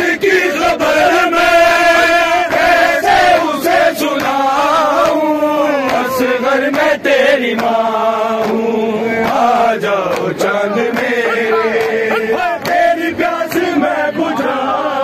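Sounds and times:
men chanting a lament: 0:00.0 - 0:15.0.

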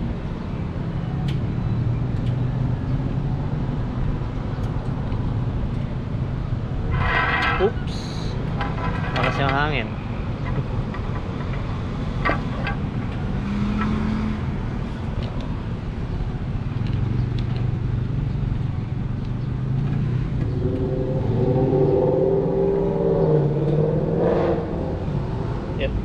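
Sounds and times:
wavering pitched drone: 0:20.4 - 0:25.8.

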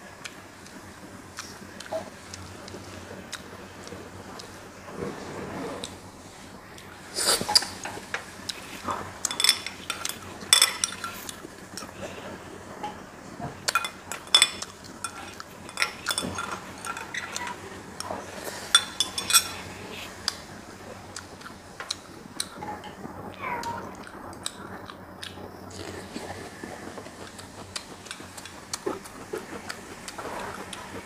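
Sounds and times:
metal spoon clinking on glass bowl: 0:09.3 - 0:11.3, 0:13.7 - 0:17.6, 0:18.8 - 0:19.6.

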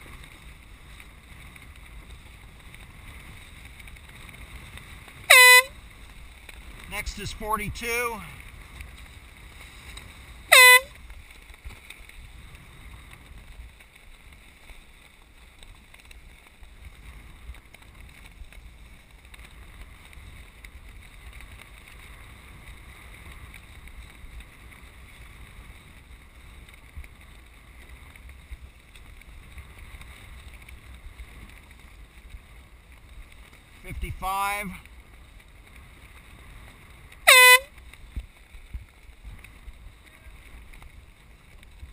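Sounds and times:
air horn blast: 0:05.3 - 0:05.7, 0:10.5 - 0:11.0, 0:37.3 - 0:37.7.

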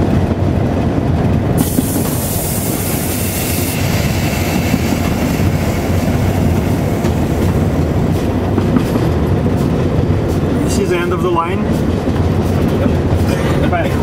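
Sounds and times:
locomotive rumbling in cab: 0:00.0 - 0:14.0
high hiss: 0:01.6 - 0:08.2.

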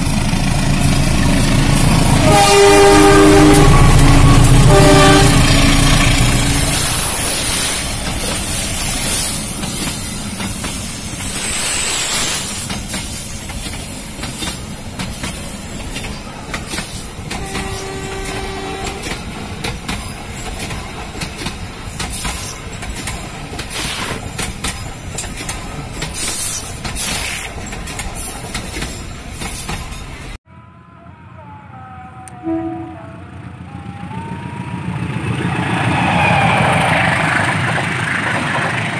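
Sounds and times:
train wheels rumbling: 0:00.0 - 0:30.4, 0:33.2 - 0:38.9
wheels clicking over rail joints: 0:12.5 - 0:30.4.

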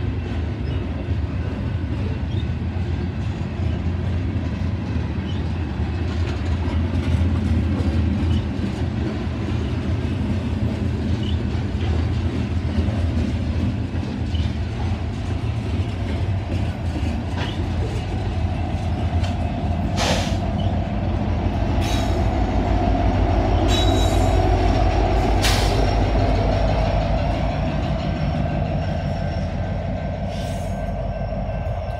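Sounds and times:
diesel locomotive engine throb: 0:00.0 - 0:31.9
freight train wheels rumbling and clacking: 0:00.0 - 0:31.9
wheel squeal: 0:05.2 - 0:05.6, 0:08.2 - 0:08.7, 0:11.1 - 0:11.6, 0:17.2 - 0:18.1, 0:20.0 - 0:20.9.

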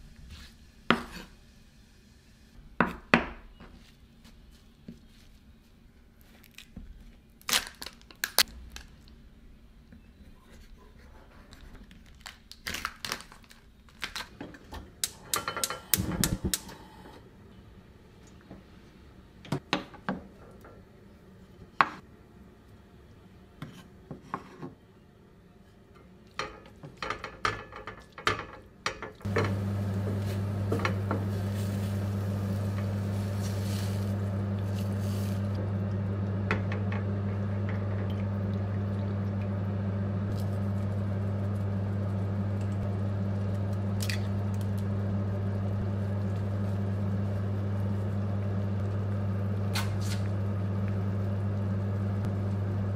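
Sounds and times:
steady low hum: 0:29.2 - 0:52.9.

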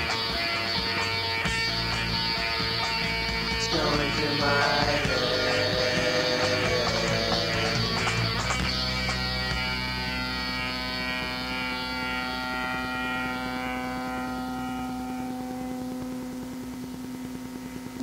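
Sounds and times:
distorted electric guitar chord: 0:00.0 - 0:18.0
low held note: 0:10.8 - 0:18.0.

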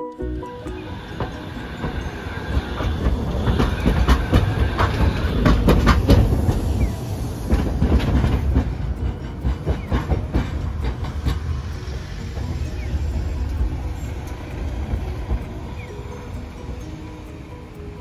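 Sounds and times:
streetcar wheels and motors rumbling: 0:00.0 - 0:18.0
wheels clacking over rail joints: 0:00.1 - 0:18.0.

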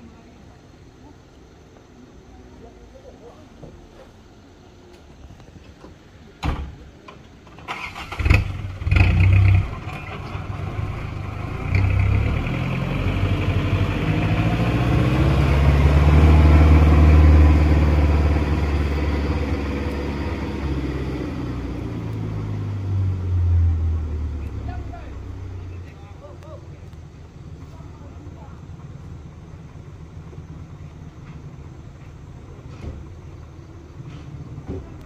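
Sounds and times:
truck engine driving past: 0:07.7 - 0:35.0.

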